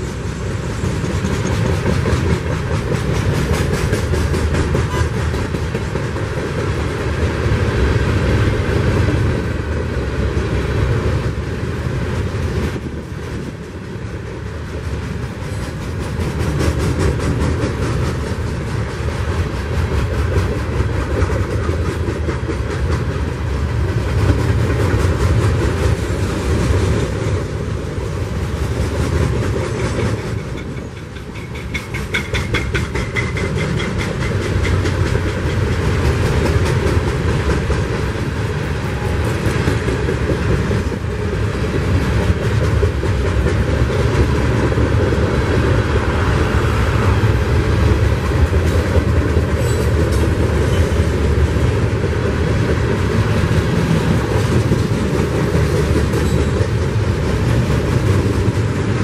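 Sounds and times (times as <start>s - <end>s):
train wheels rumbling on rails: 0.0s - 59.0s
wheels clattering over rail joints: 12.2s - 59.0s.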